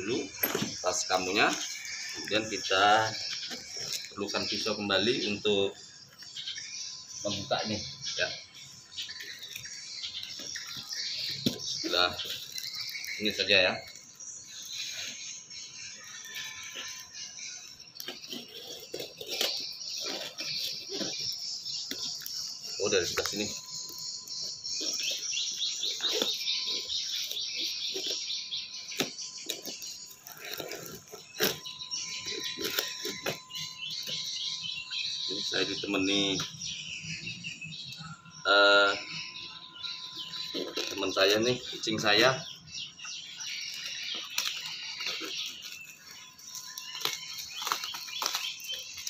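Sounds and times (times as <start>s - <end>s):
bird chirping: 0.0s - 49.0s
knife sawing through cardboard: 16.0s - 34.4s.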